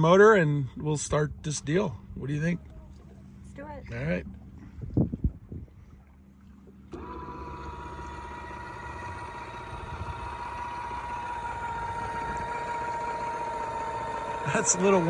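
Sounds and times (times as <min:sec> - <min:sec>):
electric motor whine: 0:06.9 - 0:15.0.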